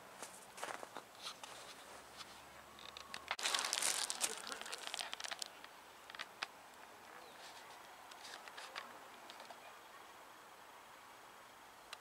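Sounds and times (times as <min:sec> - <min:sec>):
footsteps crunching in snow: 0:00.1 - 0:02.7, 0:03.3 - 0:05.5
rustling and crackling: 0:00.2 - 0:09.6.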